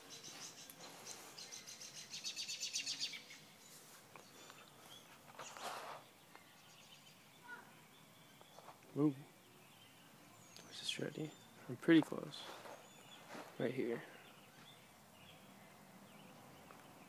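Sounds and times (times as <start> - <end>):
songbird trilling: 0.0 - 3.7.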